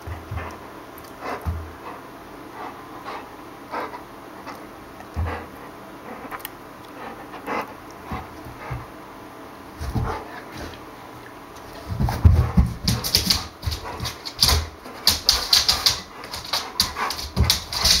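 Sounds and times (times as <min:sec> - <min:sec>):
dog paws thudding: 0:00.0 - 0:00.6, 0:01.4 - 0:01.9, 0:09.8 - 0:10.8, 0:11.6 - 0:18.0
dog claws clicking on floor: 0:11.6 - 0:18.0.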